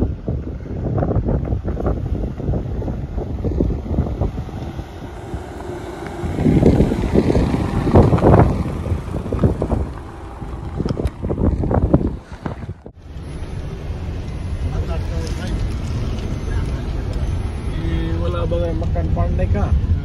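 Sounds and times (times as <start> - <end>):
wind buffeting microphone: 0.0 - 13.0
car driving slowly on dirt track: 0.0 - 20.0.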